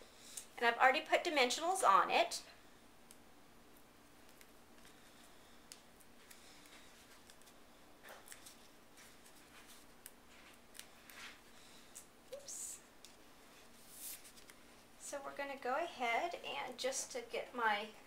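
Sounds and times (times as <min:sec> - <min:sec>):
faint steady hum: 0:00.0 - 0:18.0
cardstock rustling and ticks: 0:04.2 - 0:12.1.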